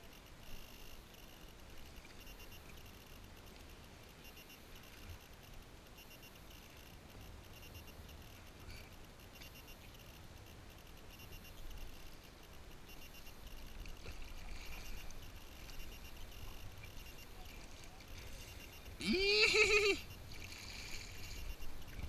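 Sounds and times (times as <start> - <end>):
water lapping along kayak hull: 8.4 - 22.0.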